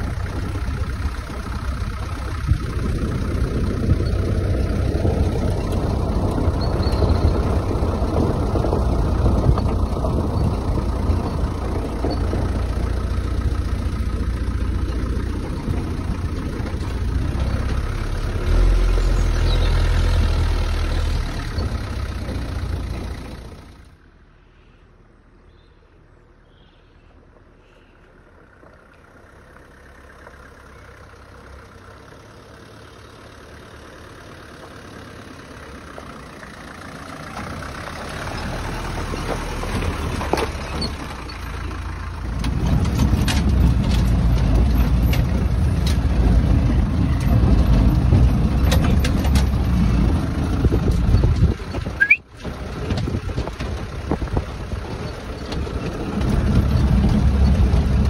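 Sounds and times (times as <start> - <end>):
approaching vehicle engine: 0.0 - 58.0
vehicle engine running: 0.0 - 58.0.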